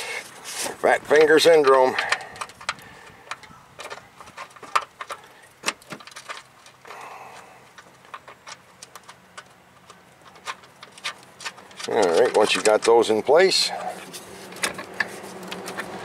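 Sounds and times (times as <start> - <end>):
soft rustle: 0.0 - 1.0.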